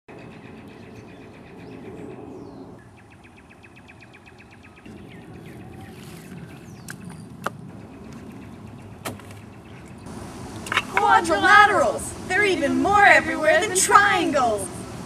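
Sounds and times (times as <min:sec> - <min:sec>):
birds chirping: 0:00.1 - 0:15.0
low background noise: 0:02.7 - 0:15.0.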